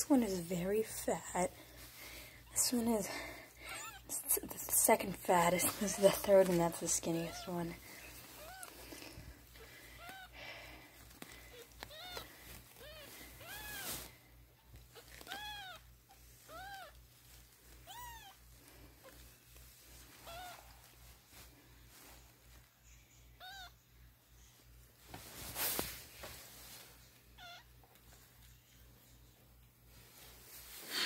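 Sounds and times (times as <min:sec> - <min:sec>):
kittens mewing: 0:03.5 - 0:04.1.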